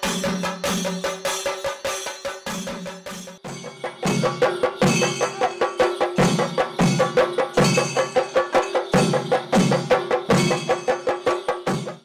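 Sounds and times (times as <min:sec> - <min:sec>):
folk drums fast rhythm: 0:00.0 - 0:12.0.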